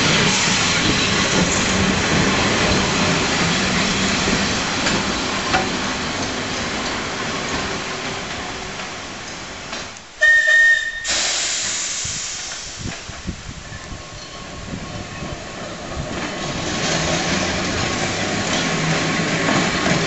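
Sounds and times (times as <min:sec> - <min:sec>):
tram wheels rumbling on rails: 0:00.0 - 0:20.0
high whistle-like tone: 0:10.2 - 0:11.2.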